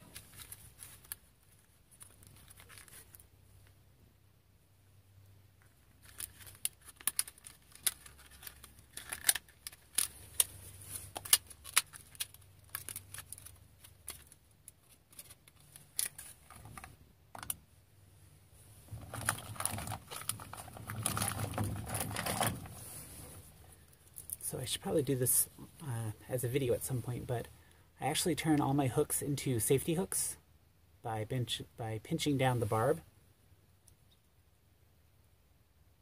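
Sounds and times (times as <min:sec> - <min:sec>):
rustle of handling: 0:00.0 - 0:03.8, 0:05.6 - 0:17.0, 0:18.4 - 0:24.4
clicks of plastic package handling: 0:06.0 - 0:17.6.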